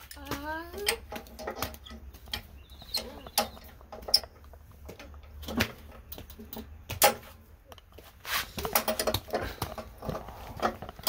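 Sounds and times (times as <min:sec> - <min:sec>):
metal parts clicking and knocking: 0:08.6 - 0:11.0.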